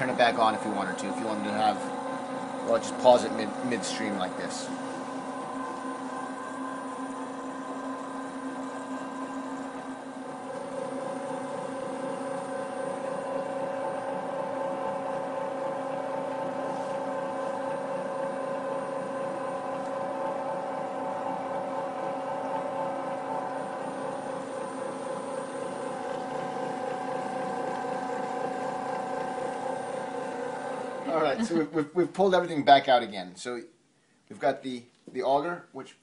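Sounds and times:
electric motor humming: 0.0s - 31.7s.

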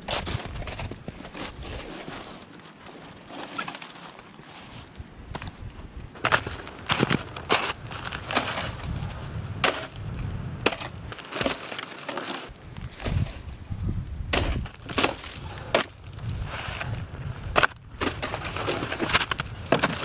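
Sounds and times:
snow shovel crunching and scraping: 0.0s - 4.8s, 6.2s - 12.5s, 14.4s - 20.0s
footsteps crunching in snow: 6.2s - 12.5s, 14.7s - 20.0s.

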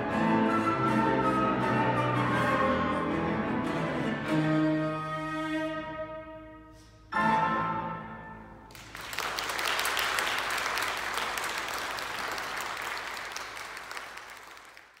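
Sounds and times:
flute cello and piano chord: 0.0s - 8.4s
audience applause: 8.7s - 15.0s.

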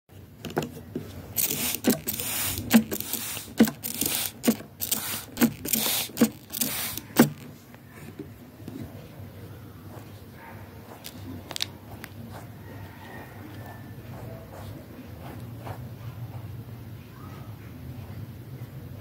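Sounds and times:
short hiss of water spray: 1.4s - 7.3s
spray bottle trigger click: 1.4s - 7.4s.

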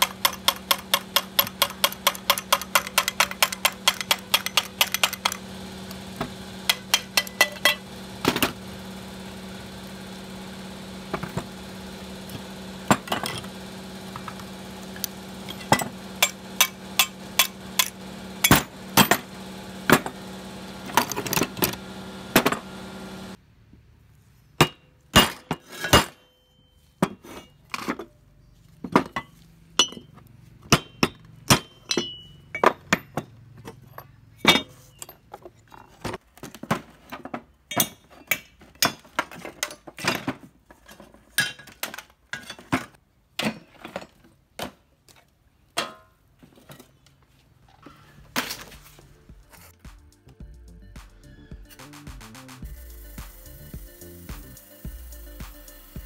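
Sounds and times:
metal tools clinking: 6.7s - 7.8s, 15.4s - 18.7s, 30.8s - 36.0s
steady hum: 48.2s - 56.0s.

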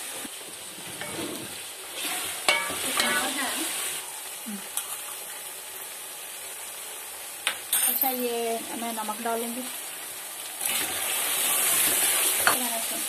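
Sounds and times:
chicken sizzling in oil: 0.0s - 13.0s
wooden spatula scraping pot: 0.8s - 3.2s.

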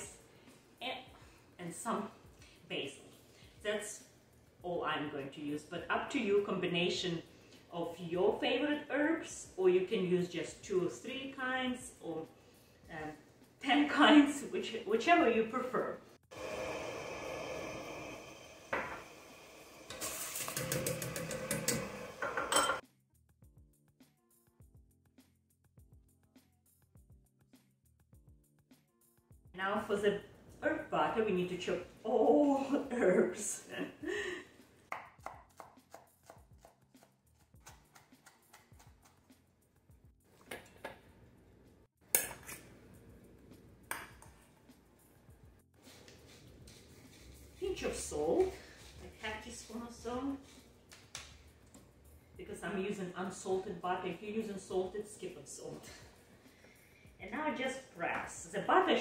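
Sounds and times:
faint background music: 0.0s - 16.7s, 20.6s - 59.0s
metal strainer tapping a pot: 20.4s - 22.8s
knife chopping on cutting board: 34.9s - 39.2s.

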